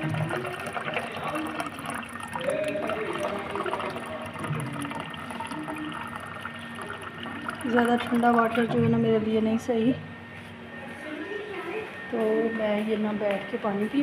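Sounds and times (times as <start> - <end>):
water pouring into a glass: 0.0 - 9.4.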